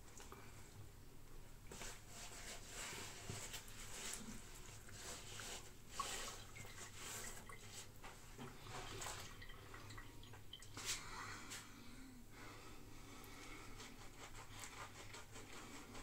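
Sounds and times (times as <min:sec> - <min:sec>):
water splashing in sink: 0:03.5 - 0:11.0.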